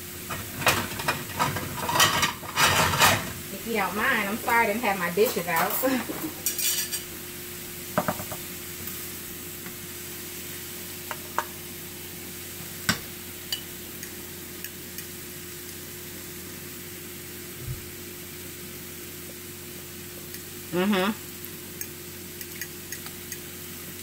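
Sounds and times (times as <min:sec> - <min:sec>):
rice sizzling in a skillet: 0:00.0 - 0:24.0
spoon tapping pan and bowl: 0:12.9 - 0:15.1.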